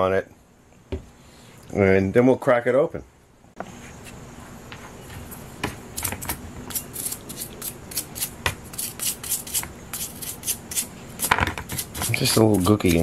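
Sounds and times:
stiff brush scrubbing metal: 11.7s - 13.0s.

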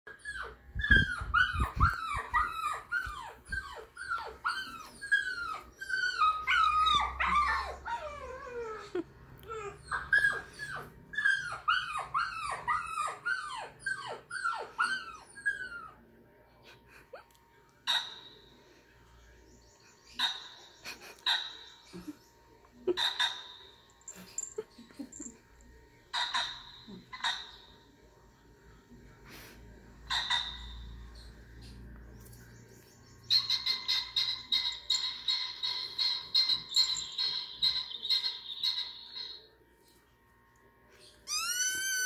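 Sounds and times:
dog whining and yelping: 0.1s - 16.0s, 33.3s - 39.4s, 41.3s - 42.0s.

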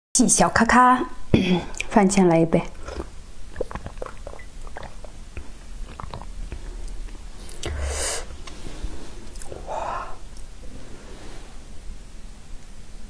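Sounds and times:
gulps and swallows of a drink: 2.7s - 8.3s, 9.2s - 10.4s
wet mouth clicks: 2.8s - 8.6s, 9.2s - 9.7s
breathy exhale: 7.4s - 11.7s.

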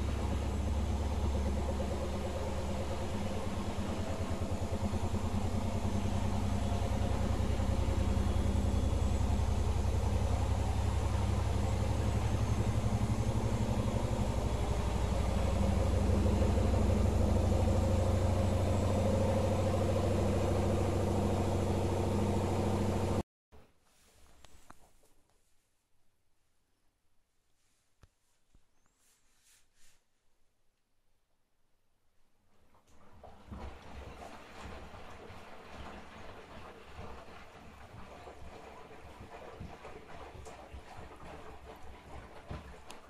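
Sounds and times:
washing machine spinning: 0.0s - 23.2s, 32.5s - 43.0s.

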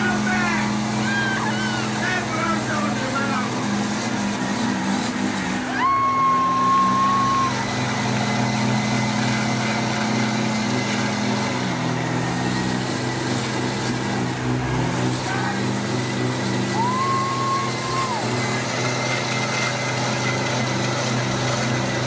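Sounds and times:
truck engines running: 0.0s - 22.0s.

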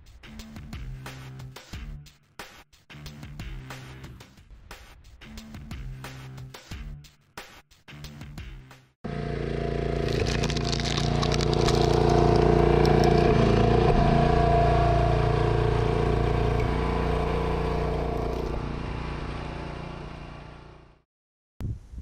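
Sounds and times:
log splitter engine running: 9.1s - 21.0s
wood cracking: 10.0s - 13.6s.

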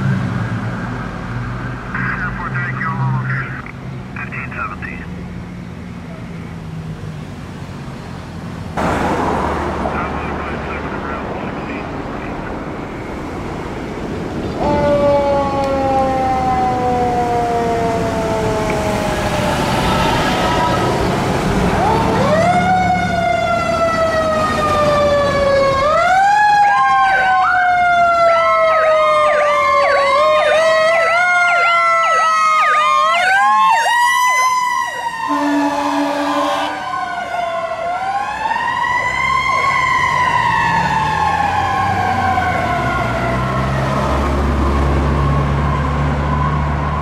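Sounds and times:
engine rumble: 0.0s - 31.8s
fire truck siren: 8.8s - 47.0s
horn blast: 35.3s - 36.8s.

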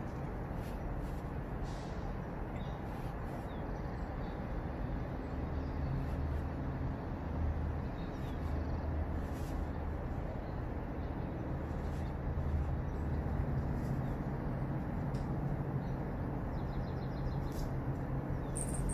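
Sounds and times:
hummingbird chirps: 18.3s - 18.9s.

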